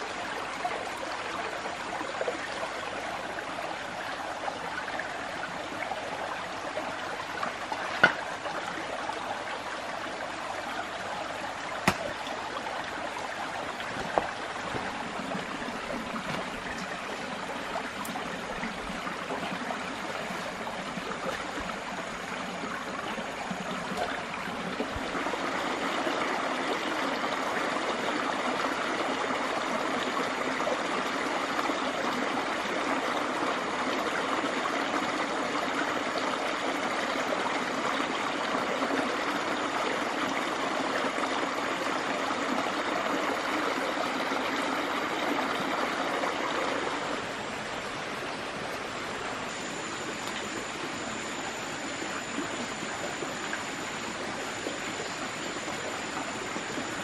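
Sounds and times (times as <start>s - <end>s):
stream water flowing: 0.0s - 57.0s.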